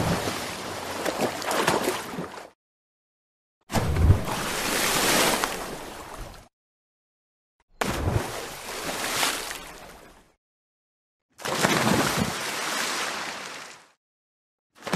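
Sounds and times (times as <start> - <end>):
ocean waves breaking: 0.0 - 2.4, 3.8 - 6.4, 11.4 - 13.9.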